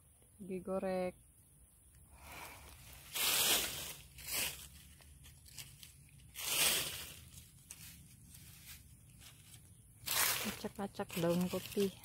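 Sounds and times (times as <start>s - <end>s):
dry leaves crunching and rustling: 2.7s - 12.0s.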